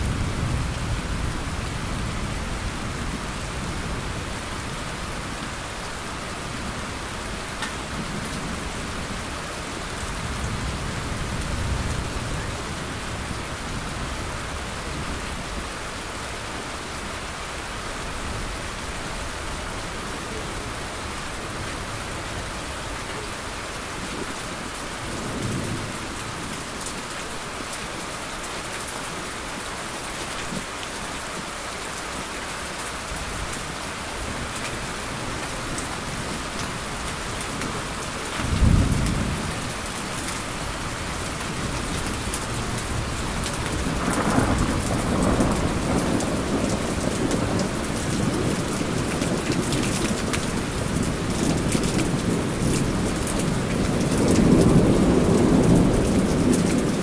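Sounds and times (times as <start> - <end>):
heavy rain: 0.0 - 57.0
thunder: 38.4 - 39.7, 42.9 - 48.4.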